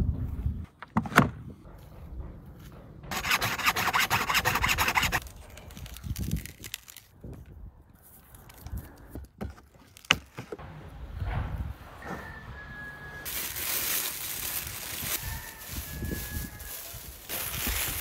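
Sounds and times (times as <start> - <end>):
hacksaw cutting through bone: 3.1 - 5.2.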